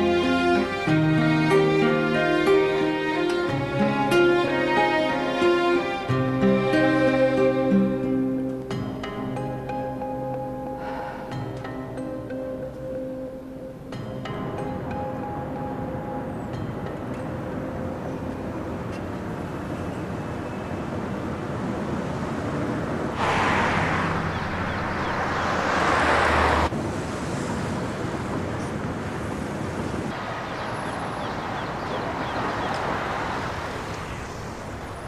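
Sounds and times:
road and tyre noise: 0.0s - 35.0s
car passing by: 21.3s - 35.0s.

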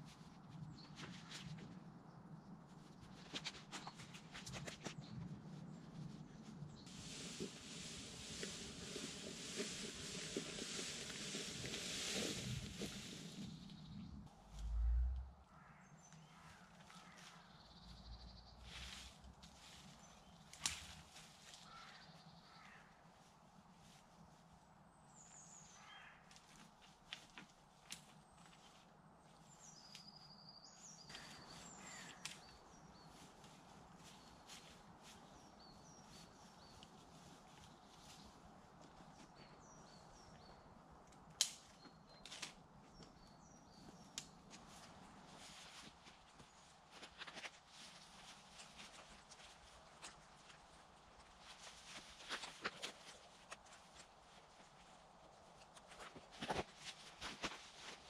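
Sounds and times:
rustling branches: 0.0s - 1.9s, 2.5s - 15.3s, 18.6s - 58.0s
branches snapping: 20.4s - 22.0s, 31.1s - 32.6s, 41.1s - 42.6s
branch snapping: 20.5s - 21.0s, 41.1s - 42.6s
small birds calling: 29.4s - 41.0s.

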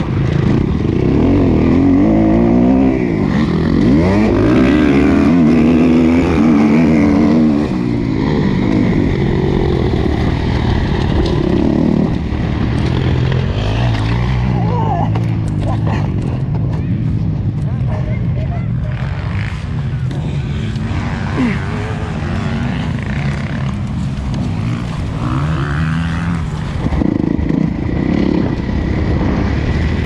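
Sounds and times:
motocross bike engine revving: 0.0s - 16.5s, 18.8s - 30.0s.

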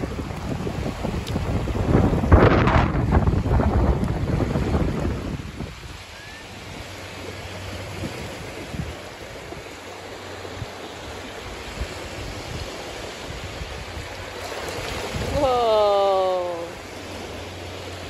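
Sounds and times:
waves washing over sand: 0.0s - 18.0s.

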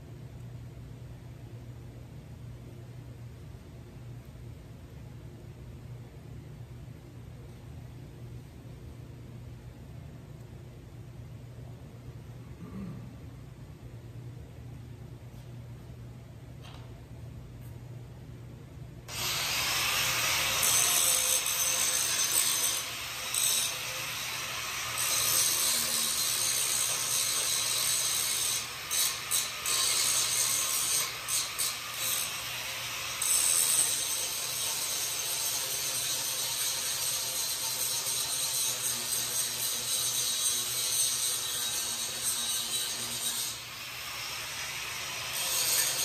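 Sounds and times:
harsh metalworking noise: 19.1s - 46.0s.

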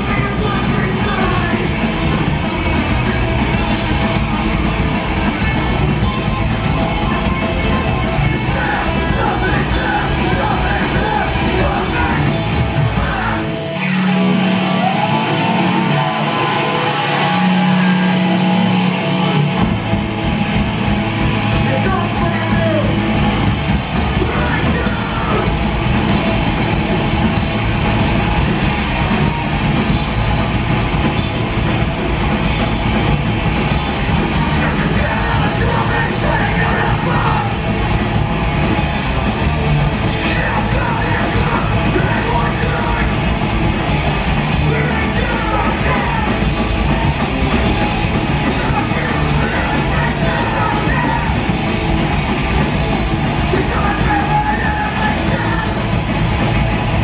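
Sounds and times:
bass guitar: 0.0s - 57.0s
distorted electric guitars: 0.0s - 57.0s
drums: 0.0s - 57.0s
shouted vocals: 6.9s - 18.3s, 23.8s - 26.2s, 34.2s - 38.1s, 39.3s - 51.7s, 53.2s - 57.0s.

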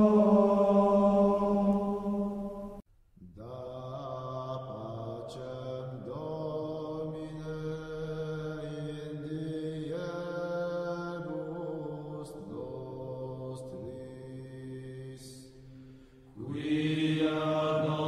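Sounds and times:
chant-like vocal music: 0.0s - 18.0s.

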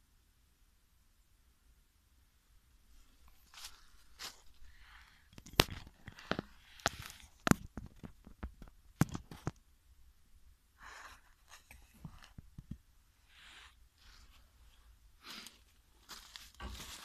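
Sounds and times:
crunching in dry leaves: 3.1s - 7.3s, 15.2s - 17.0s
sharp snaps and clicks: 5.3s - 9.6s.

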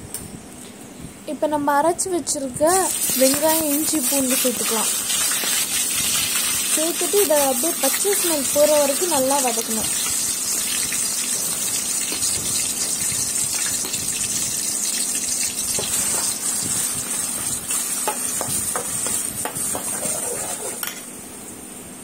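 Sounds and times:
paste sizzling in hot oil: 2.7s - 20.9s
spatula scraping a pan: 2.9s - 6.9s, 15.8s - 20.9s.

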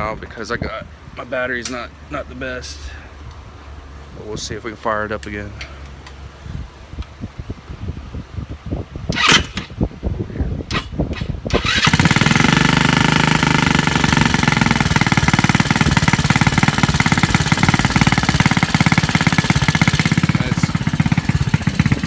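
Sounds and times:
scooter engine starting and running: 9.1s - 9.8s, 10.7s - 22.0s.

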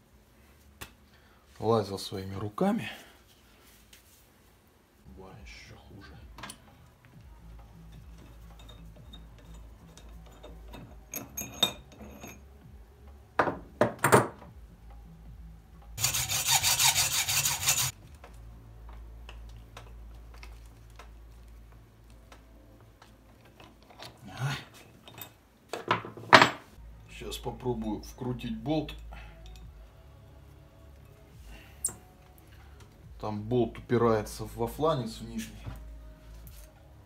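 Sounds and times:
tools clinking on metal: 7.8s - 12.4s, 24.8s - 26.6s
hacksaw rasping on metal: 16.0s - 17.9s.

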